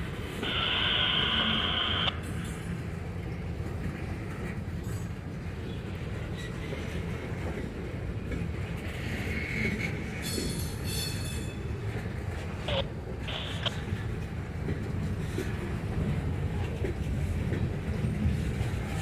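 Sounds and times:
freight train wheels rumbling: 0.0s - 19.0s.

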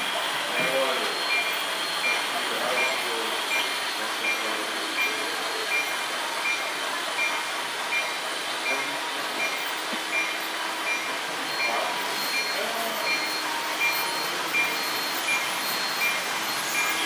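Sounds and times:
model railway running: 0.0s - 17.0s
short high electronic beep: 10.2s - 17.0s.

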